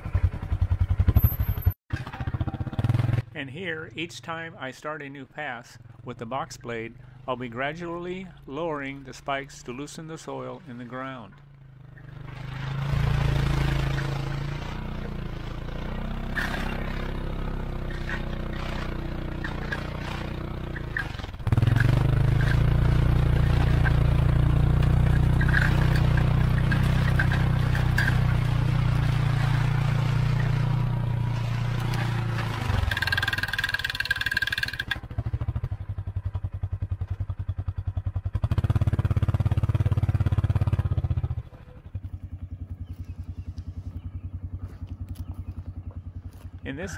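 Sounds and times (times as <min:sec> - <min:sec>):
utility vehicle engine under load: 0:00.0 - 0:03.3, 0:03.9 - 0:46.9
blade scraping through soil: 0:12.1 - 0:35.0.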